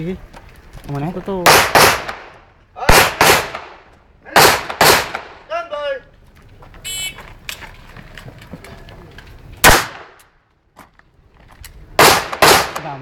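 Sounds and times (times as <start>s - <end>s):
pistol shot: 1.4s - 2.3s, 2.9s - 3.8s, 4.4s - 5.4s, 9.6s - 10.2s, 12.0s - 13.0s.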